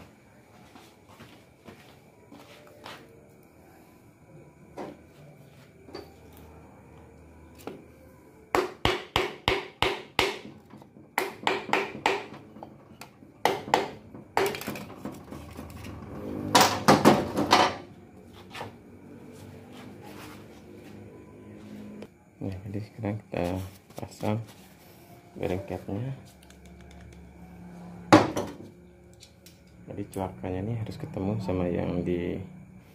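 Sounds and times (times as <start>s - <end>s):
sharp wooden hammer knocks: 8.6s - 10.6s, 11.2s - 12.4s.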